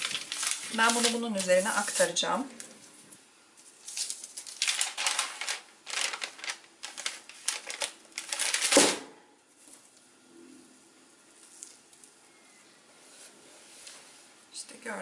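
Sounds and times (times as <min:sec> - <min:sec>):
baking paper rustling: 0:00.0 - 0:09.9.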